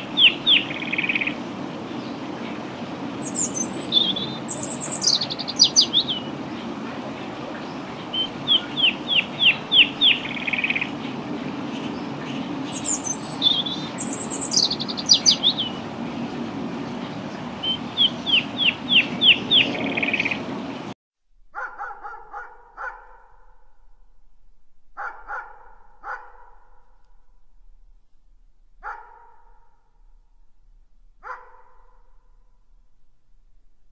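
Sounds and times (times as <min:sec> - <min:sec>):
songbird whistling song: 0:00.0 - 0:01.4, 0:03.2 - 0:06.3, 0:08.1 - 0:11.0, 0:11.8 - 0:15.8, 0:17.6 - 0:20.4
steady background noise: 0:00.0 - 0:20.9
small dog barking: 0:21.5 - 0:23.6, 0:25.0 - 0:26.8, 0:28.8 - 0:29.7, 0:31.2 - 0:32.1.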